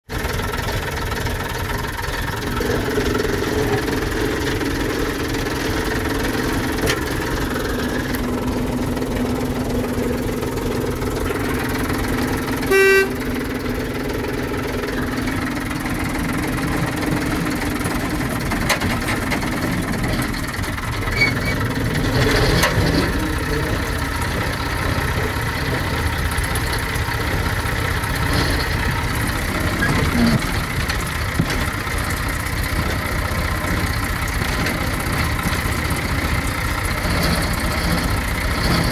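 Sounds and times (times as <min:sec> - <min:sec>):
locomotive engine running: 0:00.0 - 0:38.9
short horn toot: 0:12.6 - 0:13.3.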